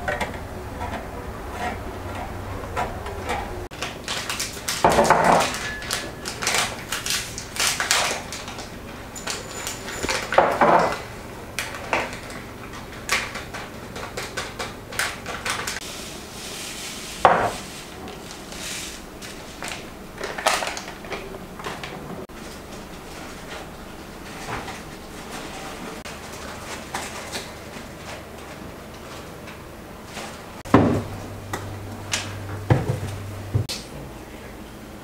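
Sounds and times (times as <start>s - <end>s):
plastic packet crinkling: 3.8s - 10.3s.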